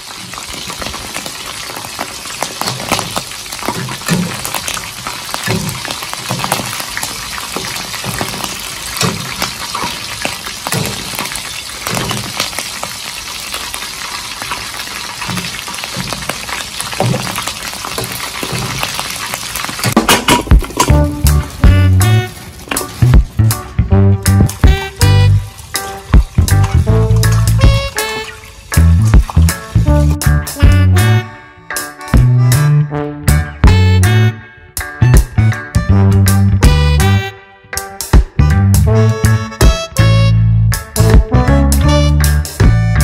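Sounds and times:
deep-frying sizzling in oil: 0.0 - 31.2, 38.0 - 43.0
metal utensil scraping wok: 17.4 - 21.2.

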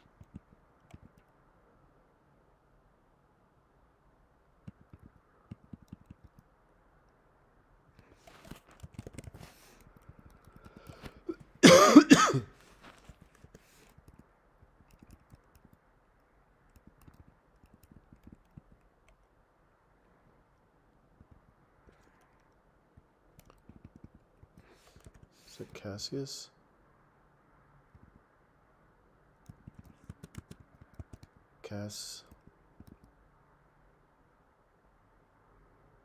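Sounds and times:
computer keyboard typing: 0.0 - 1.3, 4.6 - 6.5, 8.1 - 11.6, 12.9 - 19.2, 21.2 - 25.3, 29.4 - 31.4, 32.2 - 33.2
person coughing: 11.0 - 12.6.

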